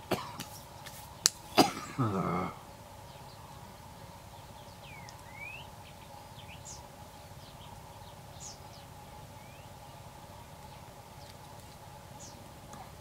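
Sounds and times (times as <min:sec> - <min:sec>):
low background hum: 0:00.0 - 0:13.0
small birds chirping: 0:00.0 - 0:13.0.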